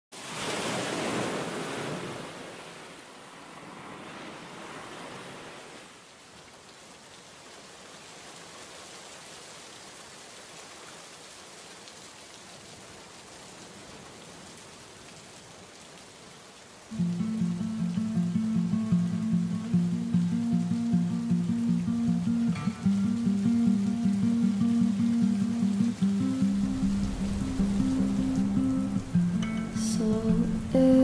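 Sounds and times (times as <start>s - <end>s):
waves breaking: 0.1s - 6.2s, 16.9s - 31.0s
rainfall hiss: 4.9s - 31.0s.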